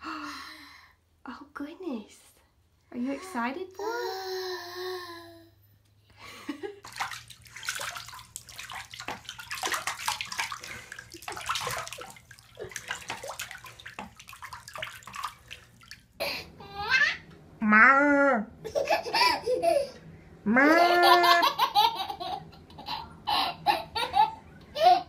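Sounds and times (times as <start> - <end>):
baby's voice: 3.8 - 5.6
water splashing in a bath: 6.6 - 16.2.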